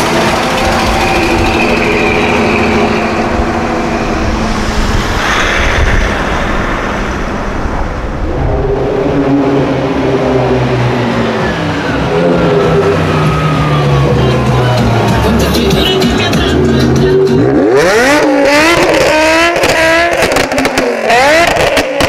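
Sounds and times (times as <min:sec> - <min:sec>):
second car engine running low: 0:00.0 - 0:04.8
car engine pulling away: 0:00.0 - 0:07.0, 0:07.7 - 0:22.0.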